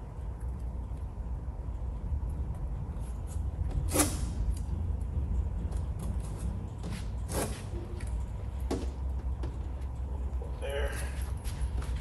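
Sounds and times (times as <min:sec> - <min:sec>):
steady low hum: 0:00.0 - 0:12.0
masking tape tearing: 0:03.8 - 0:04.6.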